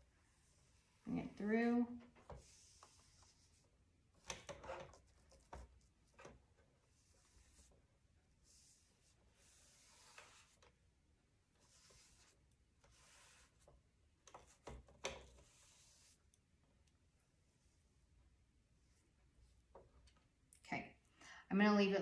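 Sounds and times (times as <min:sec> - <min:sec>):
paintbrush swishing on wood: 0:02.1 - 0:03.8, 0:08.4 - 0:10.7, 0:11.6 - 0:13.8, 0:15.3 - 0:16.3.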